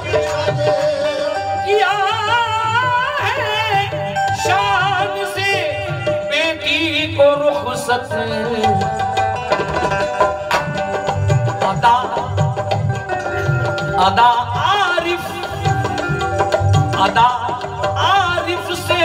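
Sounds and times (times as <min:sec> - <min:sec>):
ornamented melodic line: 0:00.0 - 0:19.0
tabla strokes: 0:00.0 - 0:19.0.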